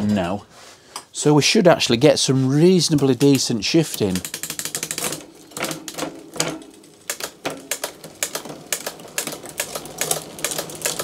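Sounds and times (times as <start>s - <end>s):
bicycle chain clicking across cogs: 2.9s - 11.0s.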